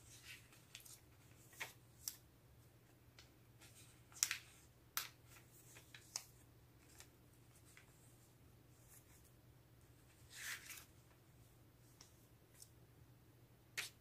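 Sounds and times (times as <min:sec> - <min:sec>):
thin pages turning: 0:00.0 - 0:02.2, 0:10.1 - 0:11.1.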